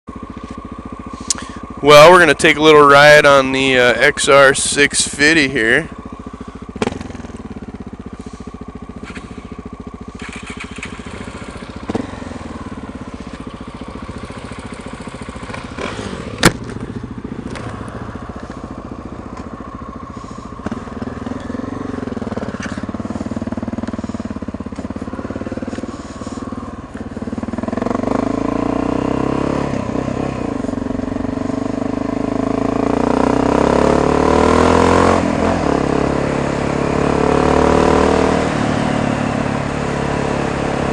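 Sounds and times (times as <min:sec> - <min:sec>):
motorcycle engine idling and revving: 0:00.0 - 0:40.9.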